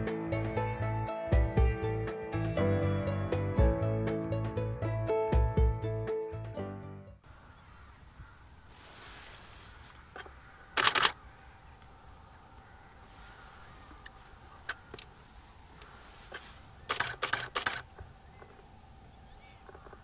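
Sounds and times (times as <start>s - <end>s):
camera shutter firing: 10.8s - 11.2s, 16.9s - 17.9s.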